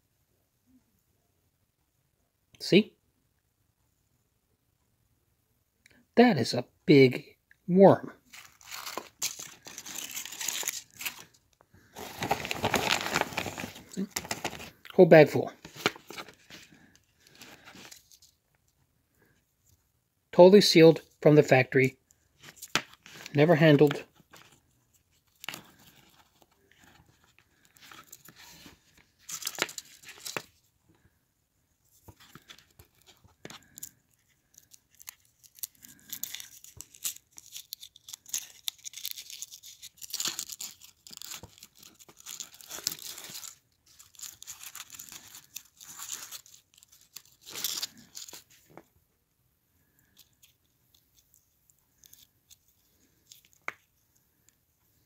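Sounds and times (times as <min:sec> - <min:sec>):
foil wrapper crinkling and tearing: 0:08.3 - 0:14.8, 0:25.2 - 0:30.6, 0:32.2 - 0:48.6.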